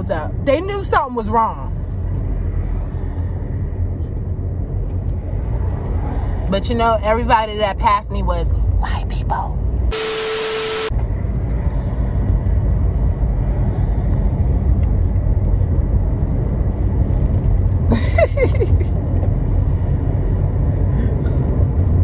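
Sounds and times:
woman's voice: 0.0 - 1.7, 6.5 - 9.6
car engine and tyre rumble: 0.0 - 22.0.

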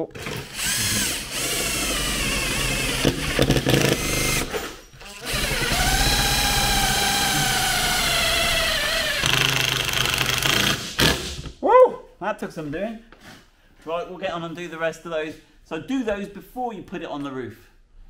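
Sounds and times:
cordless driver whining: 0.1 - 11.3.

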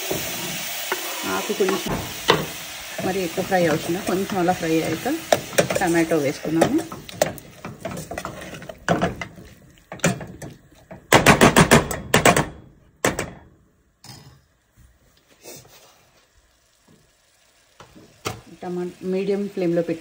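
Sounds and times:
metal ladle scraping pot: 0.0 - 10.9.

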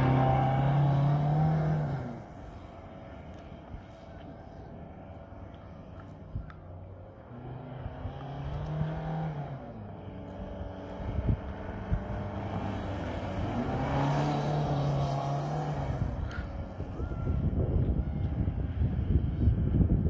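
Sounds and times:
car engine revving: 0.0 - 2.5, 7.3 - 16.8.

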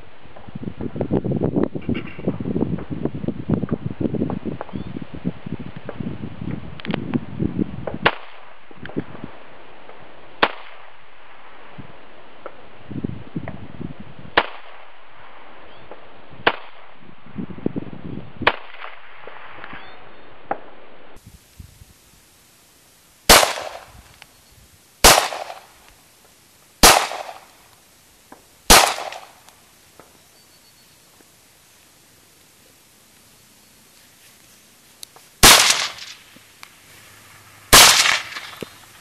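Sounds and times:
loud handgun shots with echo: 23.3 - 23.9, 25.0 - 25.7, 26.8 - 27.4, 28.7 - 29.3, 35.4 - 36.1, 37.7 - 38.6
faint rifle shots: 23.3 - 24.0, 25.0 - 25.7, 26.8 - 27.5, 28.7 - 29.4, 35.4 - 36.3, 37.7 - 38.8.

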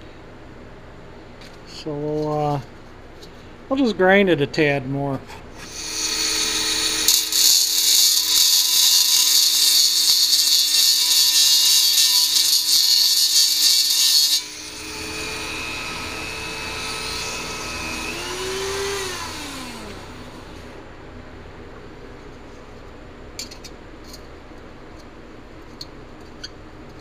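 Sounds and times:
rotary tool grinding metal: 5.3 - 20.8
rotary tool motor whining: 5.6 - 20.8.

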